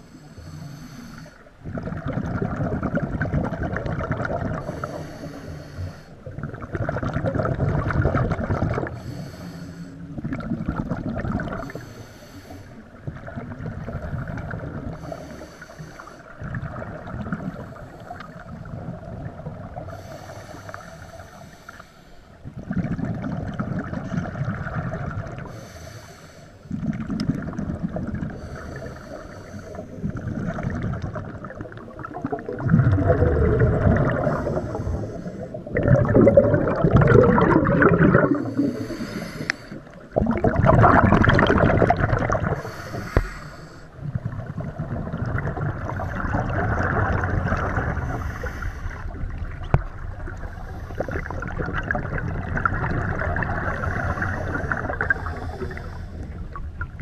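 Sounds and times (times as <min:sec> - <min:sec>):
regulator hissing inhale: 0:00.0 - 0:01.5, 0:04.6 - 0:06.3, 0:08.9 - 0:10.2, 0:11.6 - 0:13.0, 0:14.9 - 0:16.4, 0:17.6 - 0:18.7, 0:19.9 - 0:22.4, 0:25.4 - 0:26.8, 0:28.2 - 0:30.1, 0:34.2 - 0:35.7, 0:38.2 - 0:40.1, 0:42.5 - 0:44.1, 0:47.9 - 0:49.2, 0:50.3 - 0:51.6, 0:53.6 - 0:56.5
exhaled bubbles rumbling: 0:01.5 - 0:05.3, 0:06.2 - 0:09.3, 0:10.0 - 0:11.9, 0:12.8 - 0:15.5, 0:16.2 - 0:21.2, 0:22.4 - 0:25.6, 0:26.6 - 0:57.0.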